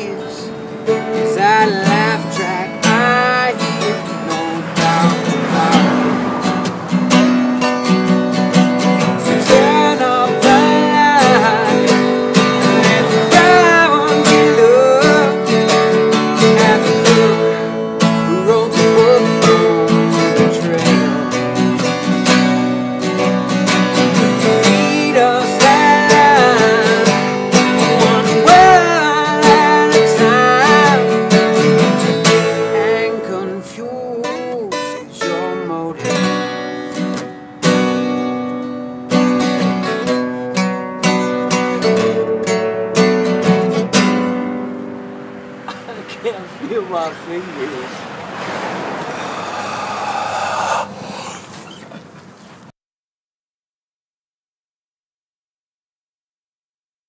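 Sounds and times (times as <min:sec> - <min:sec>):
man singing: 0:00.0 - 0:06.4, 0:09.0 - 0:21.6, 0:24.4 - 0:36.5
acoustic guitars strummed: 0:00.0 - 0:49.2.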